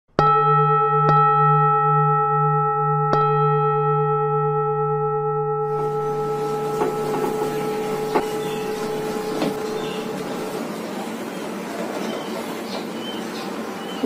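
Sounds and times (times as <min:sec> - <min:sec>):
bowl bell ringing: 0:00.2 - 0:10.6.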